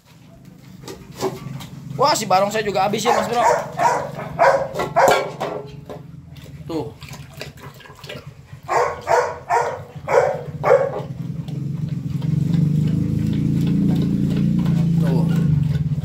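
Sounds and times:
dog barking: 3.0s - 5.6s, 8.6s - 11.3s.

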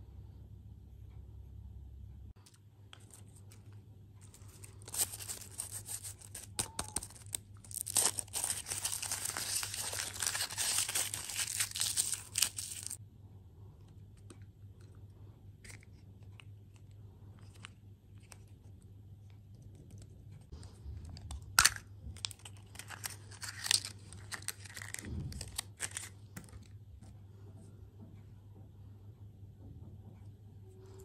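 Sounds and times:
foil wrapper crinkling and tearing: 3.0s - 13.0s, 21.6s - 26.6s
chocolate shell cracking: 21.2s - 26.5s.

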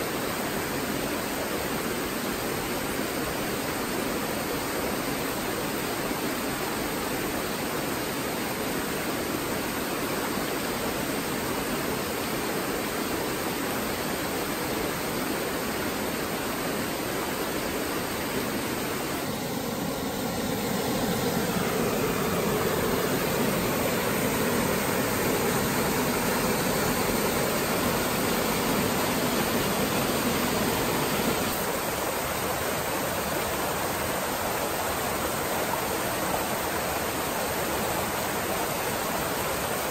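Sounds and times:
waterfall pouring into pool: 19.6s - 33.8s.

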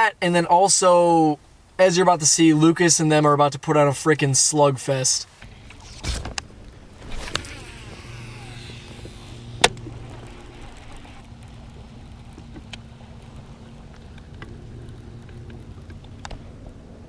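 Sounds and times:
faint low hum: 5.2s - 17.0s
reel click: 5.4s - 16.7s
reel spool whirring: 5.4s - 17.0s.

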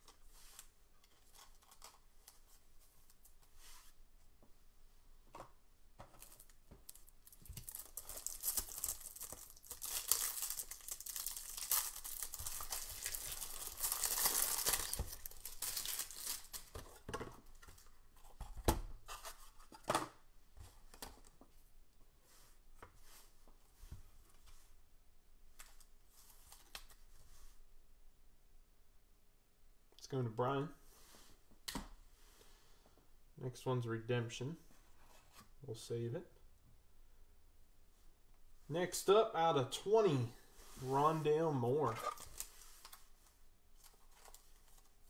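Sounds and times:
plastic card sleeves crinkling: 6.1s - 17.0s, 40.7s - 43.2s, 43.8s - 45.0s.

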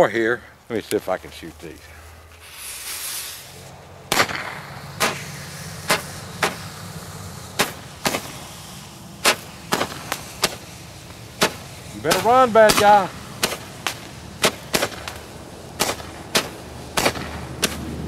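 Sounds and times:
faint burning hiss: 0.0s - 18.0s
firework pops: 4.1s - 6.6s, 7.6s - 8.4s, 9.2s - 10.7s, 11.4s - 17.9s.

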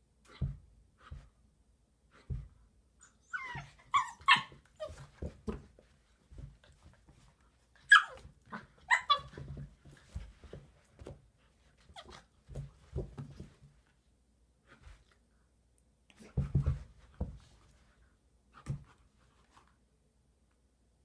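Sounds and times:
dogs yipping and barking: 3.3s - 5.0s, 7.8s - 9.5s
paws scuffling on rug: 4.8s - 13.9s.

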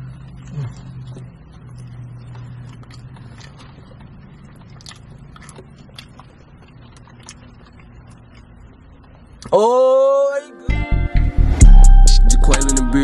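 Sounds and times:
wet chewing with lip smacks: 0.0s - 9.5s
low hum: 10.7s - 13.0s.

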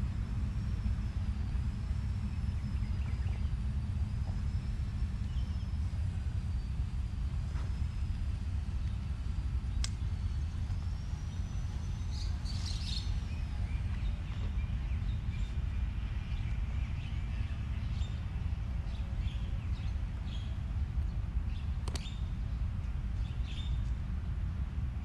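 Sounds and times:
faint bird chirps: 10.7s - 18.3s.

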